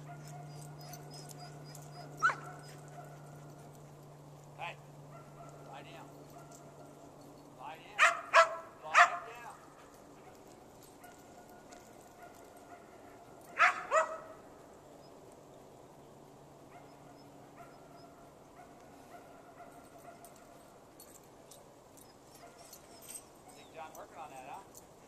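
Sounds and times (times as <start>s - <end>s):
dog barking: 0.0s - 0.7s, 2.0s - 3.6s, 5.1s - 6.9s, 8.0s - 9.6s, 11.0s - 14.4s, 16.7s - 20.6s.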